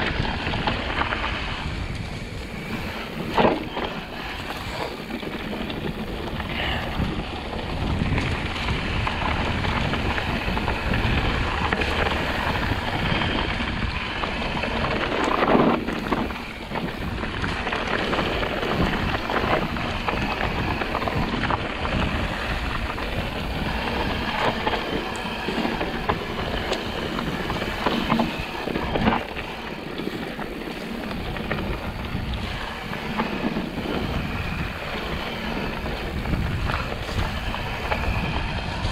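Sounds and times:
bike rattling: 0.0s - 38.9s
tyres on dirt and gravel: 0.0s - 38.9s
wind rushing over microphone: 0.0s - 38.9s.

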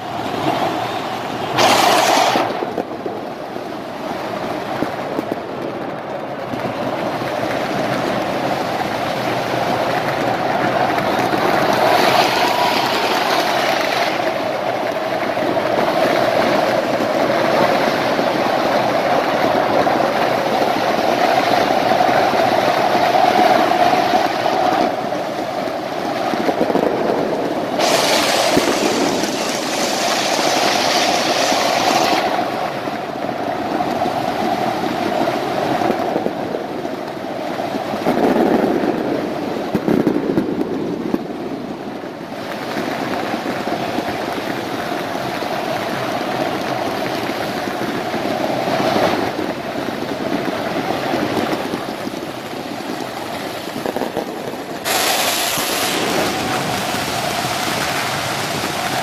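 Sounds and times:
large crowd noise: 0.0s - 41.8s
pyrotechnics rushing hiss: 1.5s - 4.5s, 26.0s - 32.8s, 52.1s - 59.0s.

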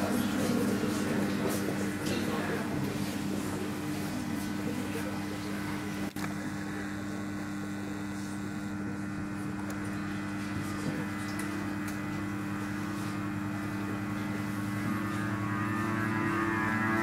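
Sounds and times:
low hum of even tones: 5.4s - 17.0s.

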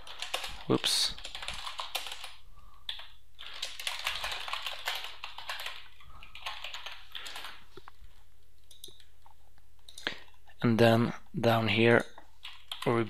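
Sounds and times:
keyboard typing clicks: 8.6s - 9.1s.

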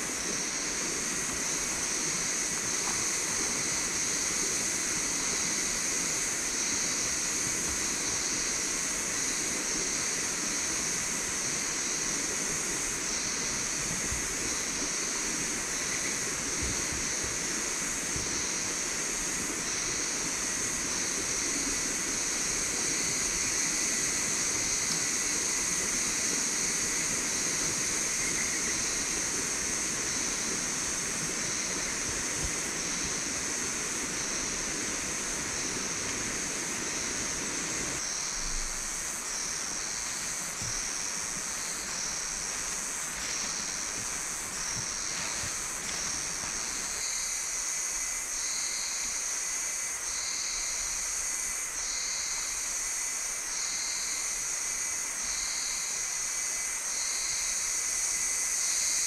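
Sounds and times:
river water rushing: 14.4s - 48.0s.

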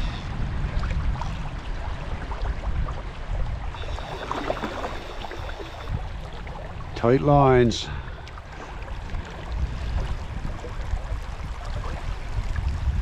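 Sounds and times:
river water rushing and gurgling: 0.0s - 13.0s.

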